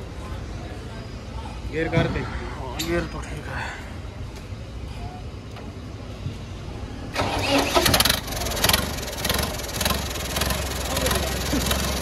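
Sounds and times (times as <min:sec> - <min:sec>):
tractor diesel engine starting and running: 0:07.1 - 0:12.0.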